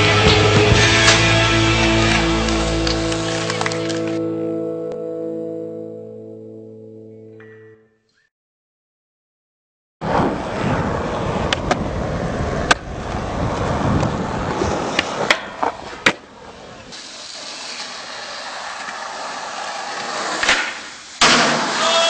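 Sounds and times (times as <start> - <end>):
skateboard wheels rolling on concrete: 0.0 - 4.3, 10.0 - 22.0
skateboard clacks: 11.4 - 12.0, 12.6 - 21.8.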